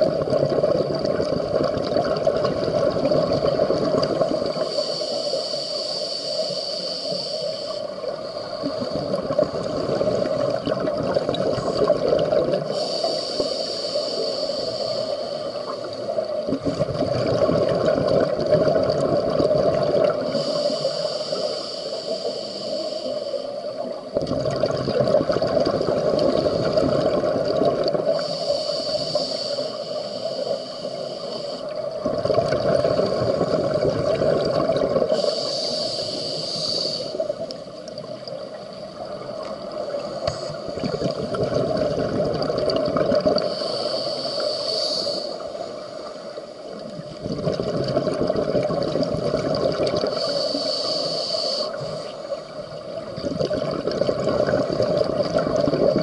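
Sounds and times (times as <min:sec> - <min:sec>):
diver breathing through regulator: 0:04.3 - 0:10.5, 0:11.6 - 0:16.3, 0:20.0 - 0:23.8, 0:28.0 - 0:31.8, 0:35.0 - 0:37.9, 0:43.2 - 0:46.6, 0:50.0 - 0:52.4.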